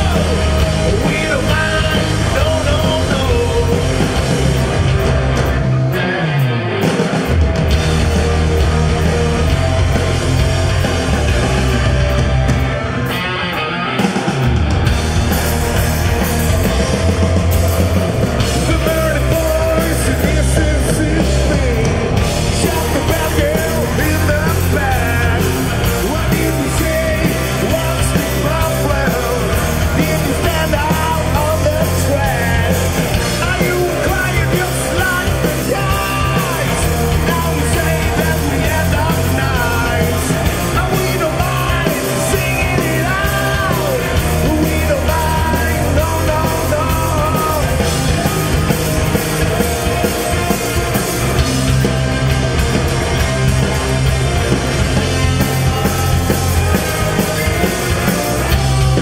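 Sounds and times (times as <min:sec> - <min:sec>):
singer shouting vocals: 0:00.0 - 0:04.0, 0:18.5 - 0:47.8
heavy rock band playing: 0:00.0 - 0:59.0.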